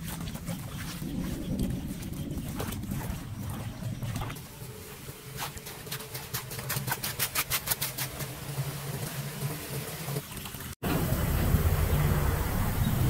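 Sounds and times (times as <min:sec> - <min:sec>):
churning water rushing: 0:00.0 - 0:13.0
hands scraping leaves off grate: 0:05.3 - 0:08.3.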